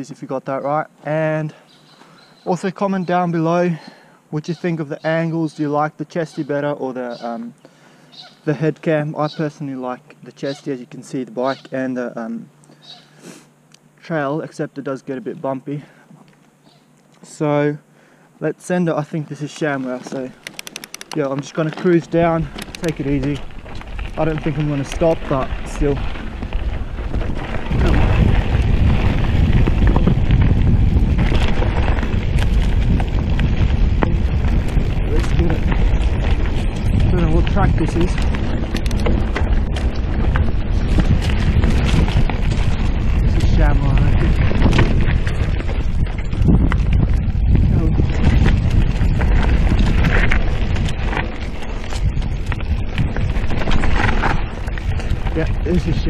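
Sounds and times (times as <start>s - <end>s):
tyres rumbling on dirt trail: 0.0s - 13.4s, 14.0s - 56.0s
bike clicks and rattles: 19.5s - 56.0s
wind buffeting microphone: 20.1s - 56.0s.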